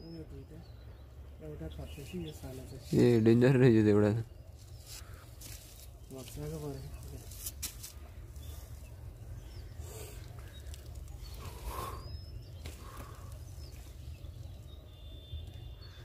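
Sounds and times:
faint bird chirps: 8.0s - 16.0s.

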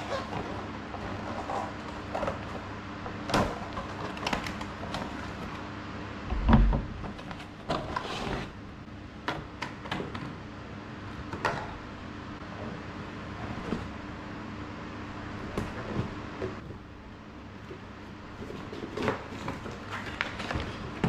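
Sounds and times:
heavy thump of box: 6.3s - 7.0s.

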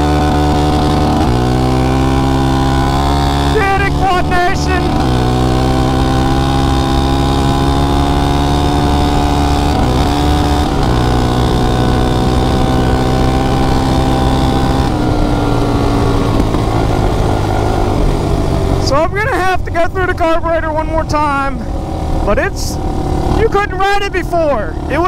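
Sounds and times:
quad engine pulling under load: 0.0s - 20.4s.

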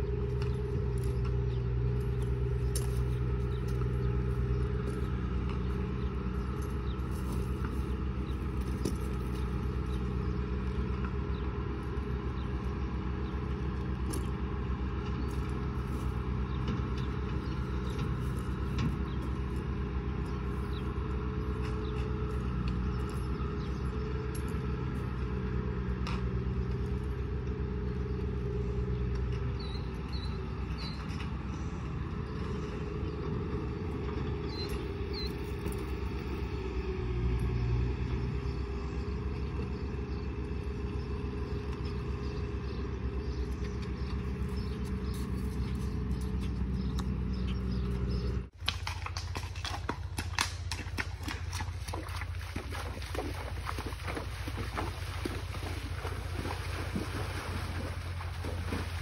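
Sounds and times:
horse hooves splashing in creek: 0.0s - 33.0s, 34.0s - 37.3s, 40.7s - 59.0s
engine idling: 0.0s - 59.0s
bird chirps: 29.5s - 32.7s, 34.4s - 36.1s, 40.9s - 48.5s.

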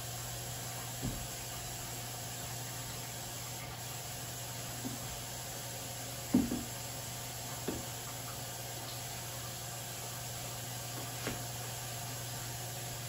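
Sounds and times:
objects knocking on kitchen counter: 6.3s - 6.7s, 7.6s - 7.9s.

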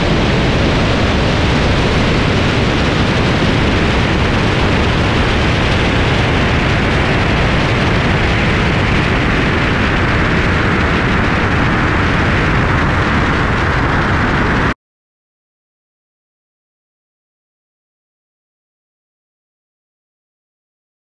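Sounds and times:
wind rushing: 0.0s - 14.8s.

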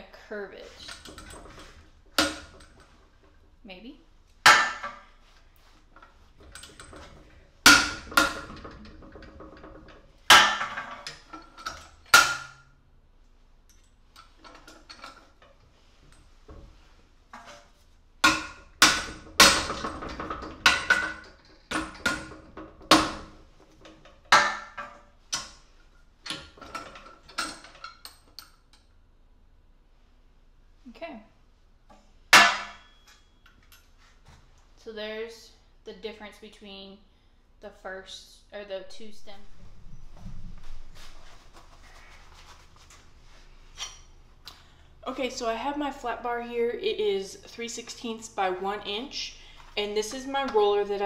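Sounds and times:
metal clanks with ringing: 32.4s - 33.8s.

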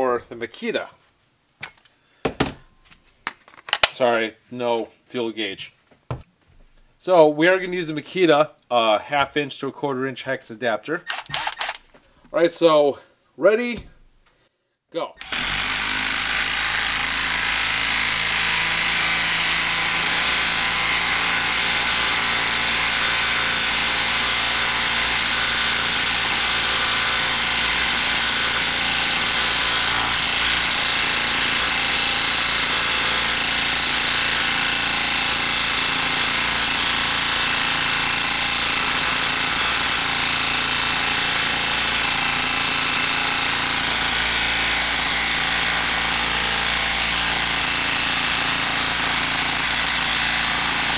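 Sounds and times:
impact driver hammering: 11.1s - 11.9s, 15.2s - 50.9s.

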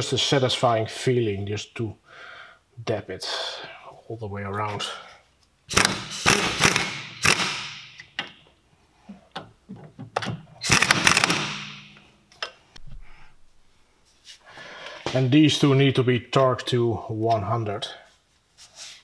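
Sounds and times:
impact wrench hammering: 5.7s - 8.4s, 10.6s - 12.1s.

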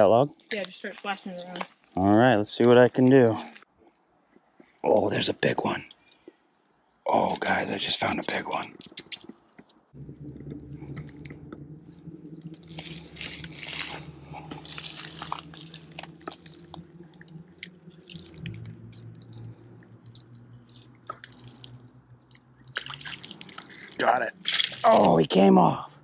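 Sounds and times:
steady low hum: 9.9s - 26.0s
lure splashing on water: 12.6s - 25.0s.

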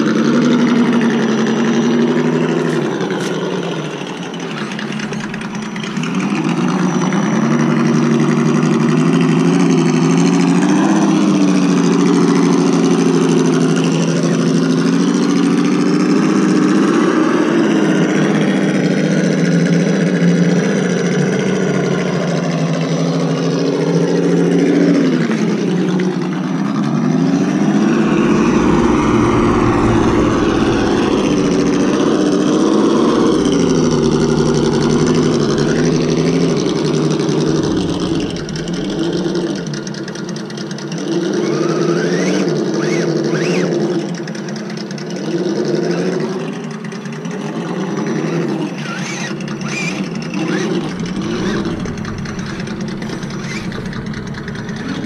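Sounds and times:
simulated engine note from speaker: 0.0s - 8.9s, 27.4s - 40.8s, 49.5s - 55.0s.

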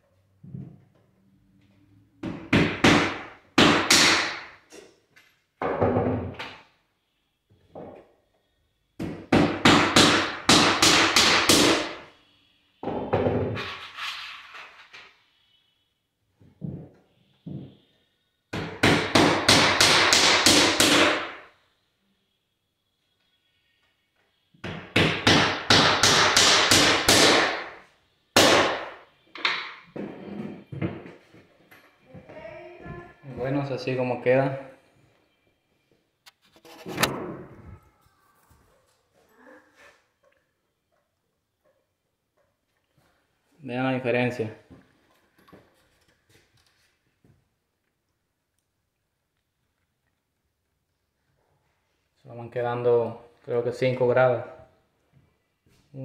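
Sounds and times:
hammer striking nails: 2.2s - 4.5s, 9.0s - 12.0s, 18.5s - 21.4s, 24.6s - 27.8s, 28.4s - 29.8s.

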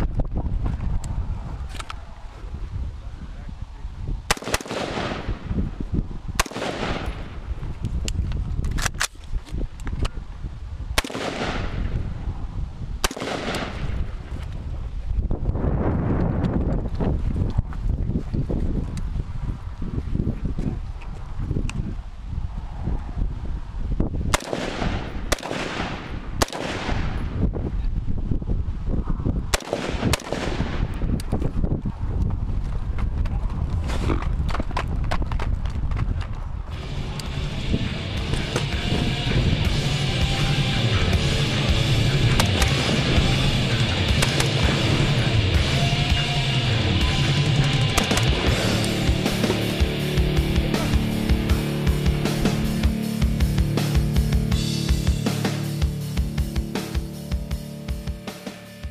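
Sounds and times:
steady low rumble: 0.0s - 35.1s, 36.5s - 58.3s
rifle shots with echo: 4.3s - 5.6s, 6.4s - 7.5s, 11.0s - 12.0s, 13.0s - 14.2s, 24.3s - 27.4s, 29.5s - 31.0s, 44.0s - 45.3s, 47.6s - 49.6s.

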